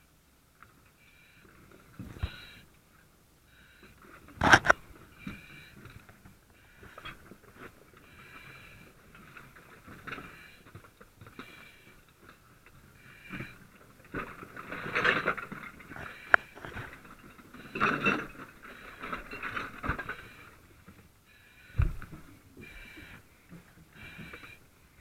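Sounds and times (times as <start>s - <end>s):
heavy breathing through mask: 1.0s - 2.8s, 14.4s - 25.0s.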